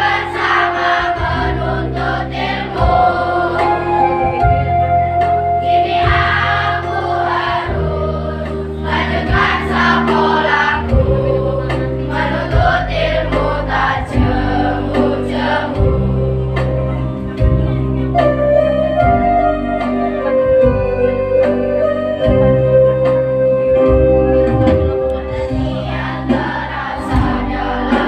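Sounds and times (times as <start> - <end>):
children's choir singing: 0.0 - 4.7, 5.6 - 17.4, 25.1 - 28.0
low keyboard chords: 0.0 - 28.0.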